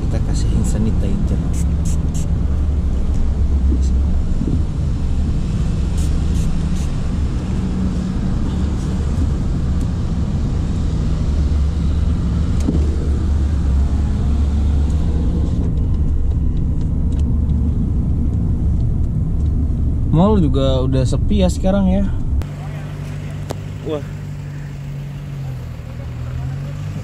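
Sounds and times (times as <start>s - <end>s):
car engine and road rumble: 0.0s - 27.0s.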